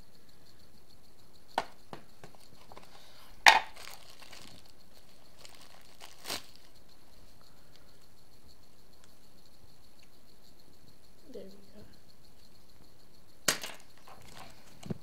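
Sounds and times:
plastic bag crinkling: 0:02.5 - 0:06.7.

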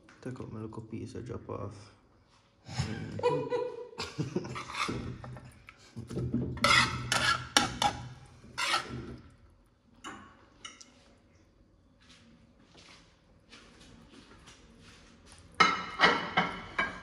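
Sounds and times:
metal spatula scraping a pan: 0:04.5 - 0:05.6, 0:06.4 - 0:09.3.

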